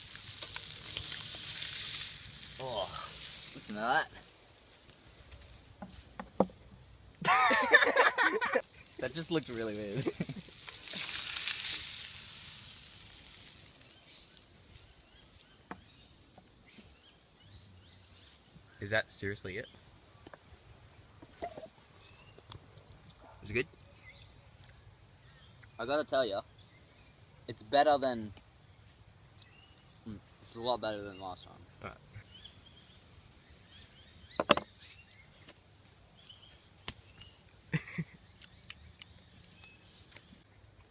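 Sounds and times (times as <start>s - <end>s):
fish sizzling in butter: 0.0s - 4.5s, 8.6s - 15.6s
knocks on wooden board: 5.8s - 6.6s, 34.4s - 34.7s.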